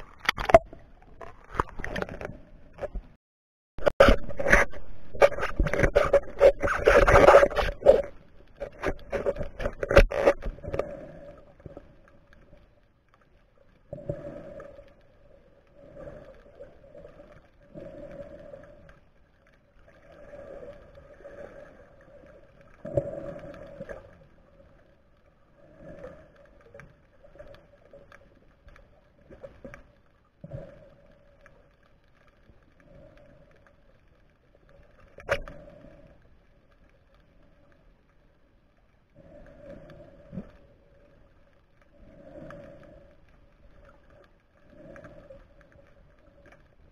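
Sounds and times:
muffled water swishes: 0:00.0 - 0:03.2, 0:03.8 - 0:46.9.

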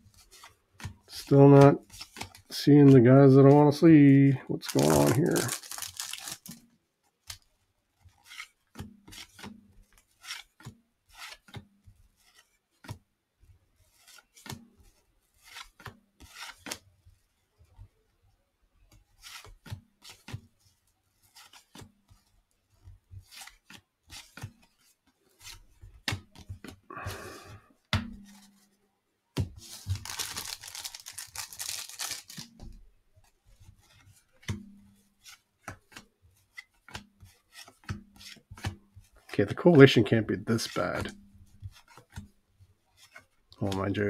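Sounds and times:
wrapper crinkling and tearing: 0:04.5 - 0:06.6, 0:29.7 - 0:32.6
cards snapping and tapping: 0:25.4 - 0:26.7.

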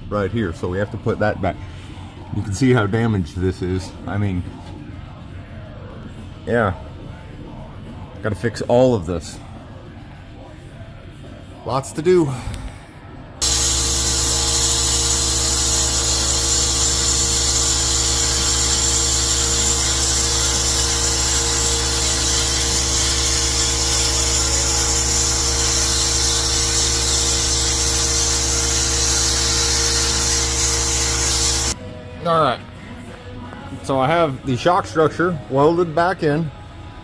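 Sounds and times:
power tool cutting steel: 0:13.4 - 0:31.8.

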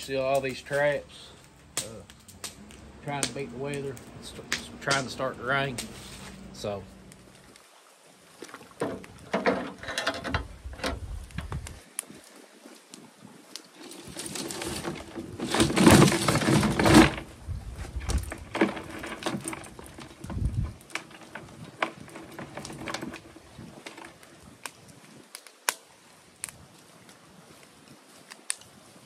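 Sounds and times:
steel traps and chains rattling: 0:09.2 - 0:11.0, 0:13.8 - 0:17.4, 0:18.0 - 0:24.1.

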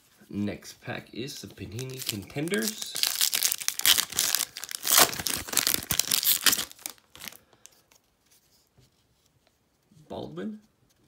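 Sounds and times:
foil wrapper tearing and crinkling: 0:01.8 - 0:07.4.

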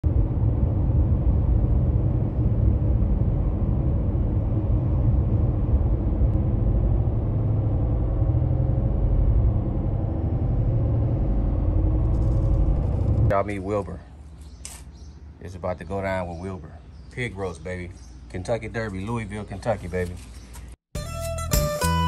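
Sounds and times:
car road and engine rumble: 0:00.0 - 0:13.3.

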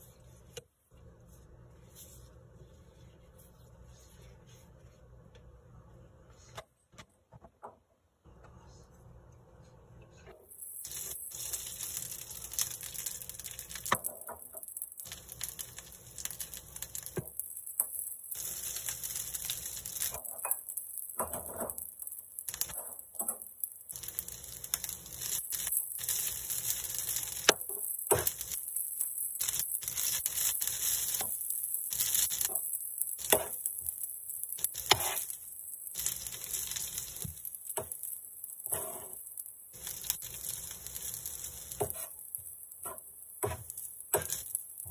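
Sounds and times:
rice sizzling on griddle: 0:10.4 - 0:44.9
metal spatula scraping and tapping: 0:32.4 - 0:33.6, 0:34.6 - 0:35.4, 0:41.7 - 0:44.9.

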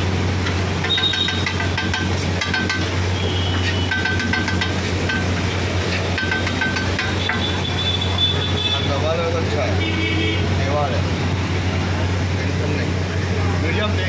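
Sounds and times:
food sizzling on griddle: 0:00.0 - 0:09.4.

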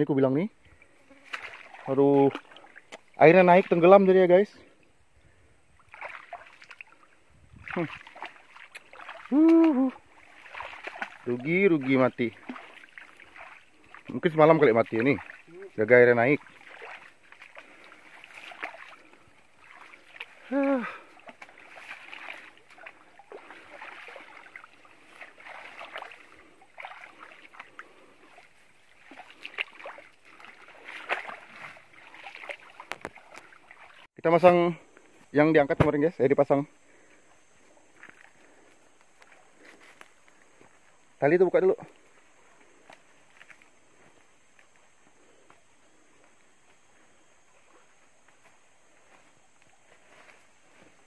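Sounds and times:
footsteps splashing in water: 0:00.8 - 0:04.4, 0:05.8 - 0:34.6, 0:37.9 - 0:51.0
tall grass rustling: 0:00.8 - 0:35.6, 0:36.5 - 0:51.0
loud hoo-like call: 0:09.3 - 0:10.0.

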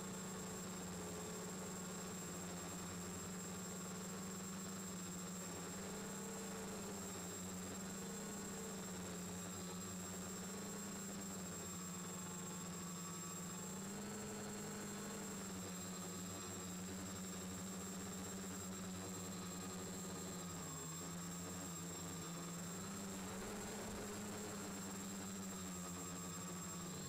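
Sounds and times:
faint high whine: 0:00.0 - 0:27.0
drone motors humming: 0:22.5 - 0:25.5.

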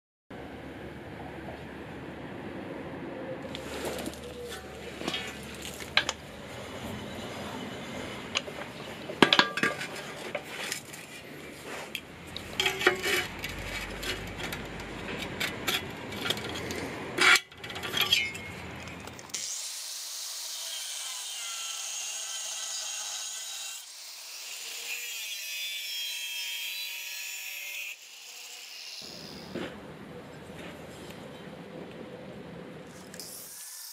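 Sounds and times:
angle grinder cutting steel: 0:12.5 - 0:29.5, 0:33.2 - 0:33.9.

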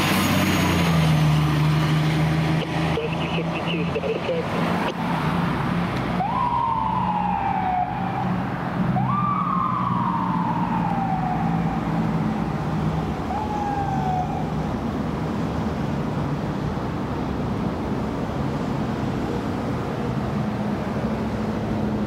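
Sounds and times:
fire engine siren wailing: 0:00.0 - 0:05.4, 0:06.1 - 0:15.0
fire engine running: 0:00.0 - 0:22.0.

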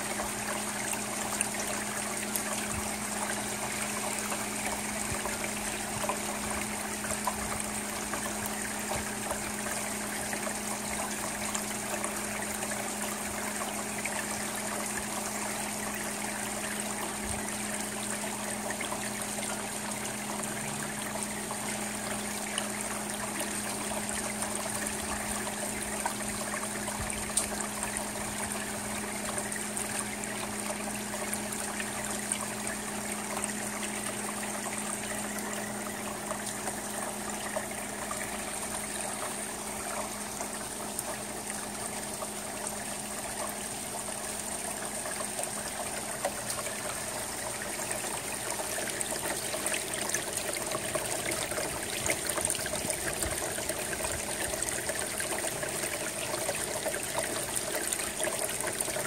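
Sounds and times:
water trickling into metal gutter: 0:00.0 - 0:59.0
sharp drip ticks: 0:17.2 - 0:47.2.

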